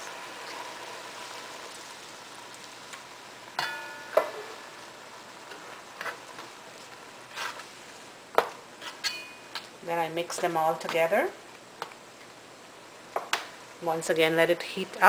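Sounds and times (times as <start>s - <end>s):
beans simmering with sizzling hiss: 0.0s - 15.0s
spoon stirring in pan: 5.4s - 9.7s.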